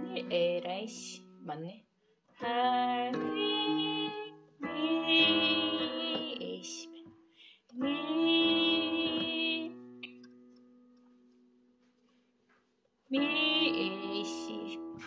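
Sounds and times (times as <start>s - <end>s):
person singing a hymn: 2.4s - 6.9s, 7.7s - 9.8s, 13.1s - 15.0s
digital piano chords: 2.4s - 7.1s, 7.8s - 11.3s.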